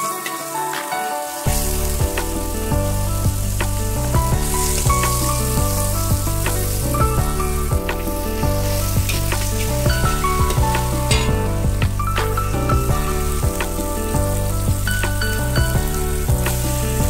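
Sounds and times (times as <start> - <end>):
food sizzling in a wok: 0.0 - 17.0
background music with bass line: 1.5 - 17.0
metal spatula scraping pan: 9.1 - 11.6.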